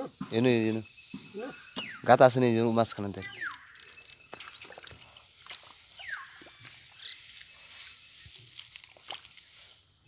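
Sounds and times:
hands squelching in wet mud: 3.3s - 10.0s.

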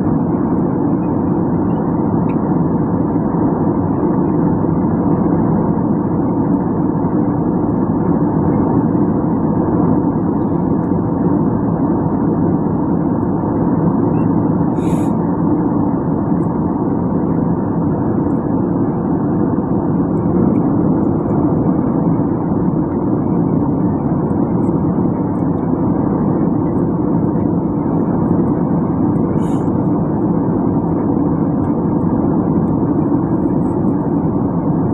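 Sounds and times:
faint steady hum: 0.0s - 34.9s
jet engine and airflow drone: 0.0s - 34.9s.

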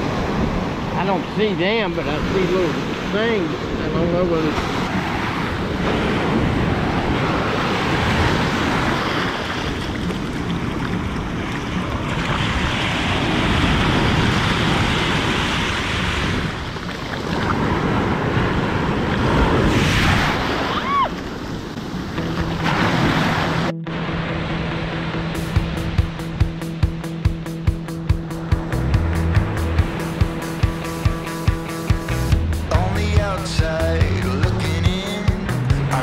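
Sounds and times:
small waves breaking on sand: 0.0s - 24.9s.

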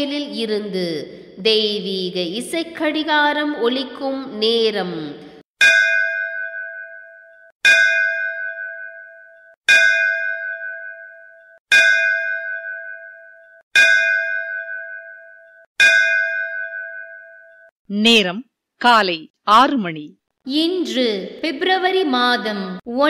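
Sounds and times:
electronic temple bell strokes: 5.6s - 17.7s.

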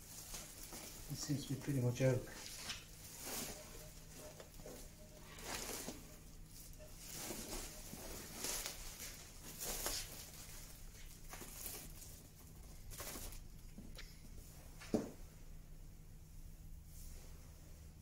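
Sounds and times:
sack rustling: 0.0s - 13.5s.

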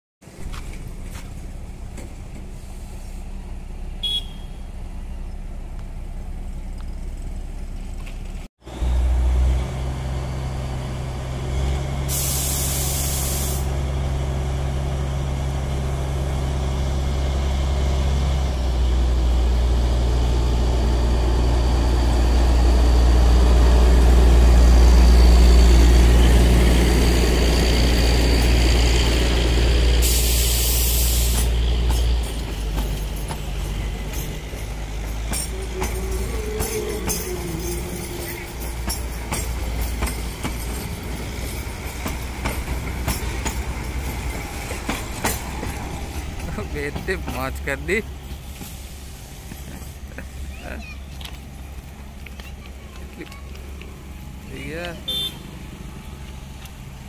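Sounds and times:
diesel locomotive engine drone: 0.2s - 57.0s
hissing air bursts: 12.1s - 13.7s, 29.9s - 31.6s, 48.4s - 50.0s.

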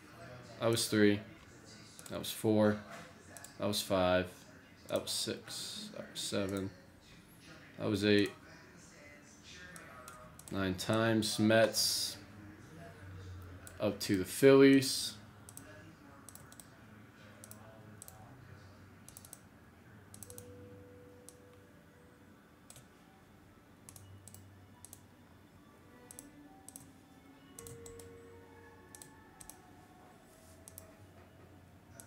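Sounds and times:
computer mouse clicks: 9.8s - 10.6s, 15.5s - 15.7s, 16.3s - 16.7s, 17.4s - 18.2s, 19.1s - 19.4s, 20.1s - 20.5s, 22.7s - 22.9s, 23.9s - 25.0s, 26.1s - 26.9s, 27.6s - 28.1s, 28.9s - 29.6s, 30.6s - 30.9s.

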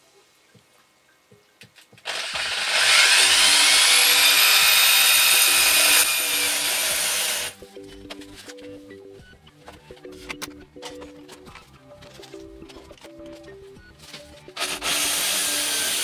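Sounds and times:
core drill boring into wall: 2.0s - 7.6s, 14.6s - 16.0s.

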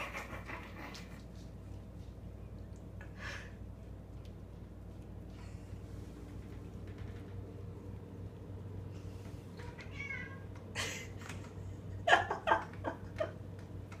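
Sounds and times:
cat meowing: 9.6s - 10.5s.

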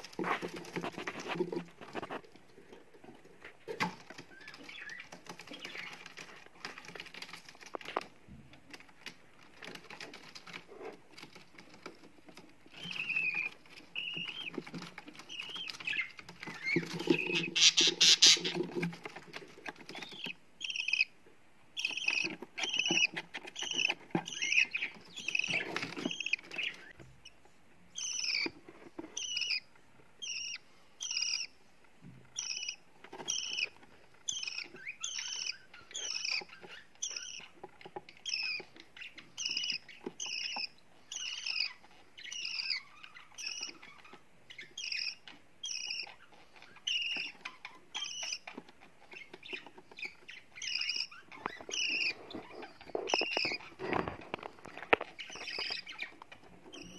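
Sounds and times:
raspy buzzing bird calls: 17.6s - 18.5s.

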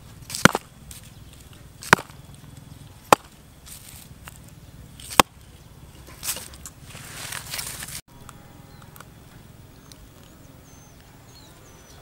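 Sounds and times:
stick knocking hard object: 1.9s - 2.2s.

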